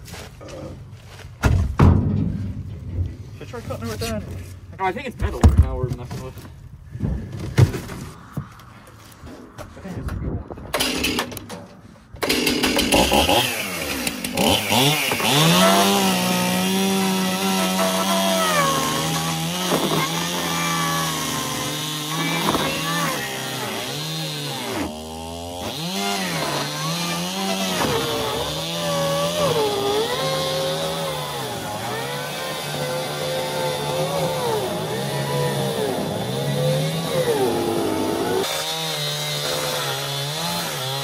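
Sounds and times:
chainsaw cutting boat hull: 12.2s - 41.0s.

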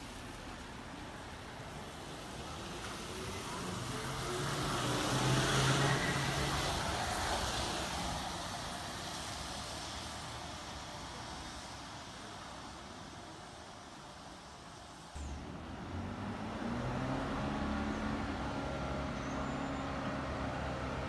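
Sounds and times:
tyre hiss on wet road: 0.0s - 16.1s
trolleybus electric hum: 0.0s - 21.0s.

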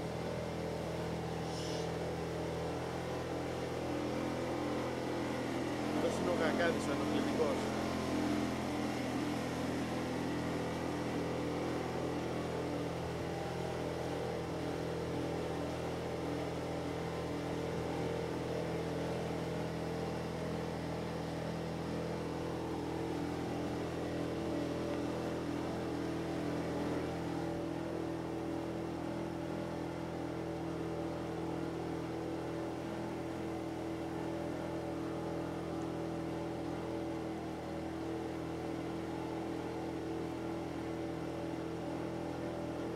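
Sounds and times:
motorboat engine droning: 0.0s - 42.9s.

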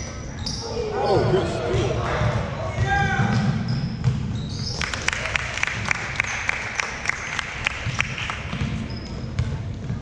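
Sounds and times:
sneaker squeak on court: 0.0s - 0.7s, 3.3s - 4.8s, 8.6s - 9.7s
spectators applauding: 4.7s - 8.5s.

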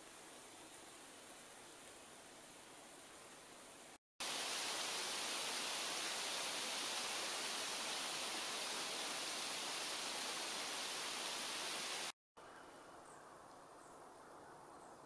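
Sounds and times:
steady hiss: 0.0s - 12.2s.

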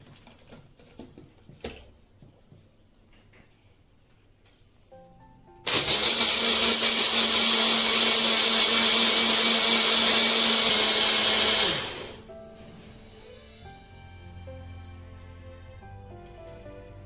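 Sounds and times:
blender motor humming: 5.7s - 12.2s.

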